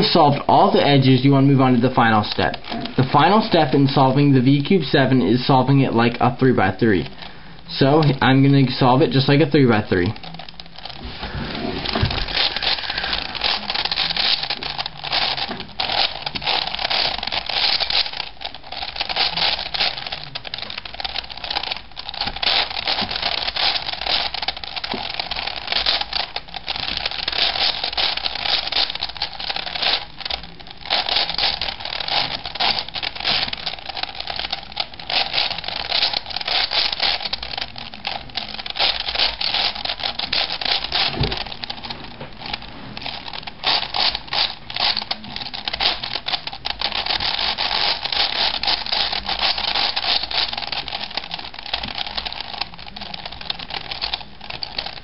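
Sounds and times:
plastic puzzle cube clicking: 11.8 - 55.0.

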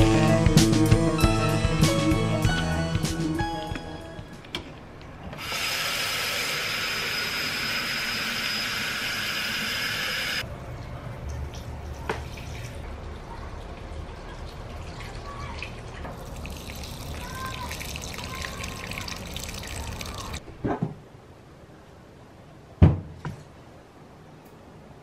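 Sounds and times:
water trickling into soil: 10.7 - 20.4.

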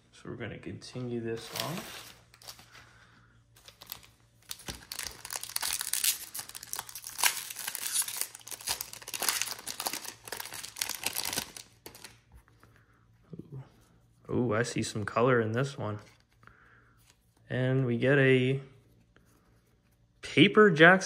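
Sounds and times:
wrapper crinkling and tearing: 3.6 - 12.2.

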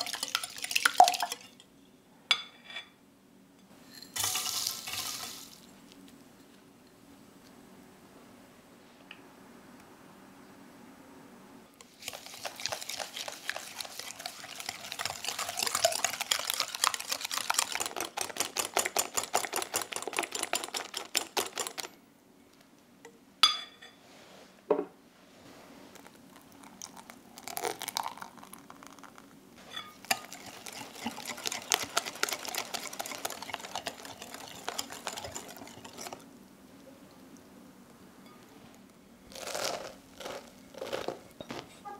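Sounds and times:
wire whisk clinking against glass bowl: 29.7 - 36.2.

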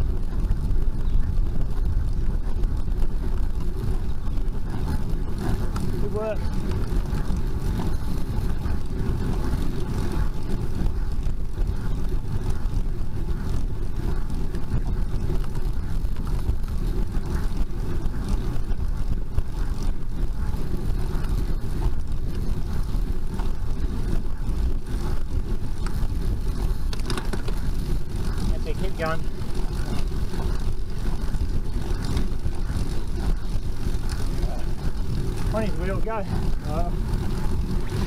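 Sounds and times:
road noise: 0.0 - 38.0
wind rumble: 0.0 - 38.0.

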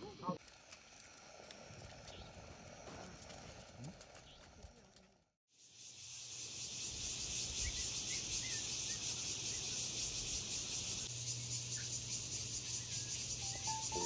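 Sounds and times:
insects buzzing: 5.5 - 14.0.

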